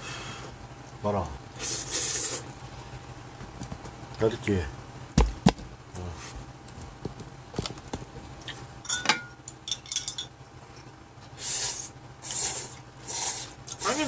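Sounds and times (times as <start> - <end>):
noodles slurping: 1.6 - 2.5, 11.4 - 13.9.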